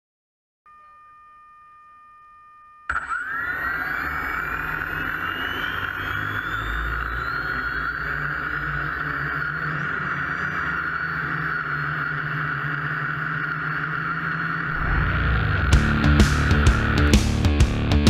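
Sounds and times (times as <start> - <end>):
drone motors whirring: 2.9 - 18.0
music: 14.8 - 18.0.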